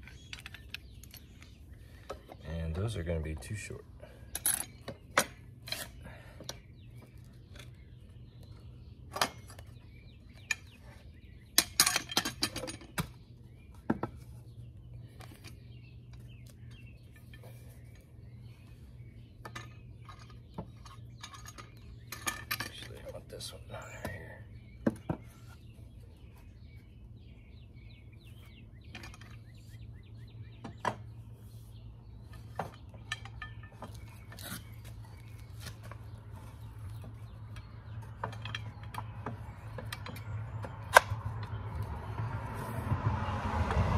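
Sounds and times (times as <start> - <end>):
metal clinks and knocks: 4.3 - 5.8, 11.5 - 13.1, 19.4 - 23.2, 32.3 - 34.5, 37.0 - 41.5.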